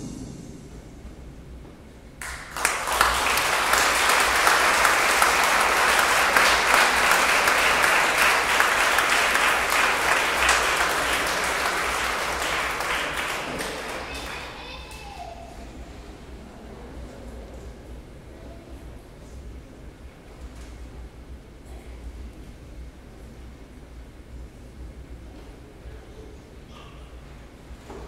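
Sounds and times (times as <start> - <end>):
audience applauding: 2.2 - 15.2.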